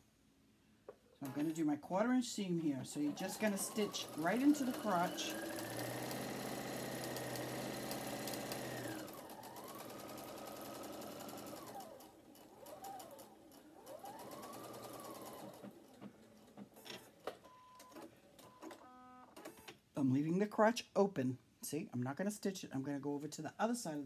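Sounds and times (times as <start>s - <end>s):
sewing machine stitching: 1.2s - 1.6s, 2.6s - 18.8s.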